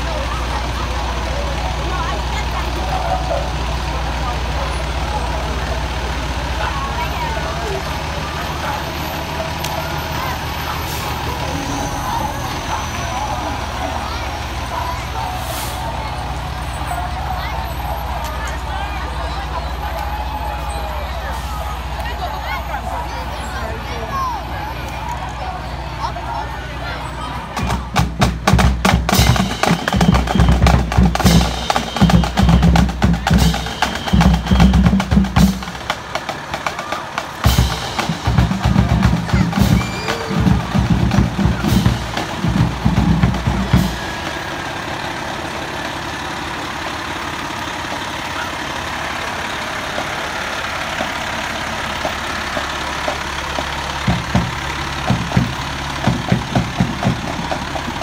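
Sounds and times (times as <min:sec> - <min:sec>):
fire engine diesel engine: 0:00.0 - 0:58.0
bass drum and snare beating: 0:27.6 - 0:44.4, 0:52.0 - 0:58.0.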